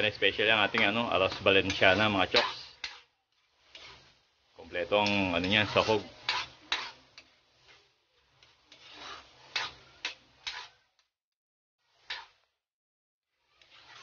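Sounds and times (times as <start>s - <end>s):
spatula scraping a pan: 0.0s - 11.1s, 11.8s - 12.6s, 13.3s - 14.0s.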